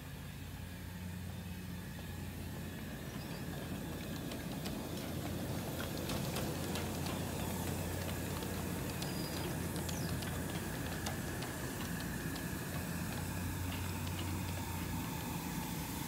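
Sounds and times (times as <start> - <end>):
rumble of wheels on rail: 0.0 - 16.0
wheels clicking over rail joints: 0.0 - 16.0.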